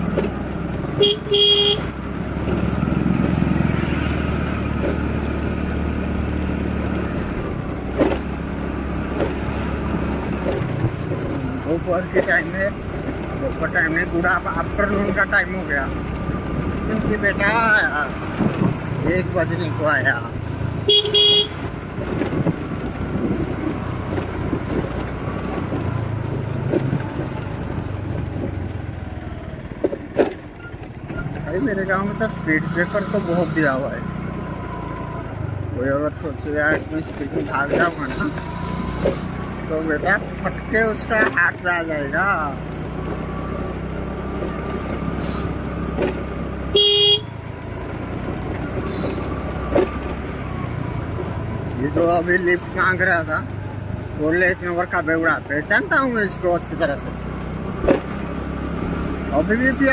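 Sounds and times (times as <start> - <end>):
road noise: 0.0 - 59.9
scooter engine running: 0.0 - 59.9
scooter horn toot: 1.0 - 1.9, 20.8 - 21.7, 46.7 - 47.4, 48.9 - 49.3.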